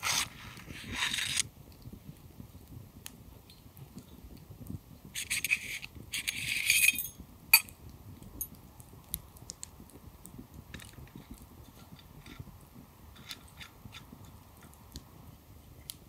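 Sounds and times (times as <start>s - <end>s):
metal tubes clinking: 6.2s - 7.7s.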